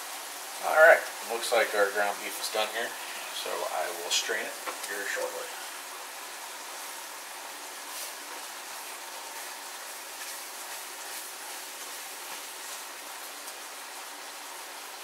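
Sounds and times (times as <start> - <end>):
meat sizzling in a skillet: 0.0 - 15.0
spatula stirring in skillet: 4.3 - 13.7.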